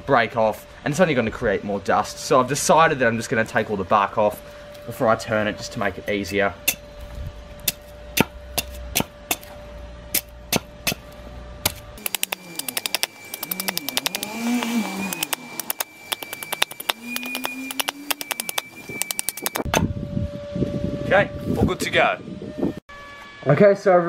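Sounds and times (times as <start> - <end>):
hatchet chopping bark: 7.6 - 9.5, 10.1 - 19.6
faint wavering low tone: 12.3 - 21.4.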